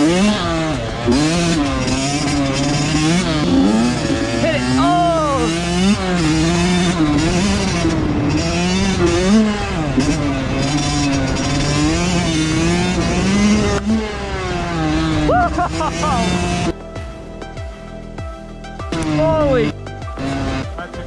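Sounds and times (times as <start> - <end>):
two-stroke dirt bike engine revving: 0.0 - 16.8, 18.9 - 21.0.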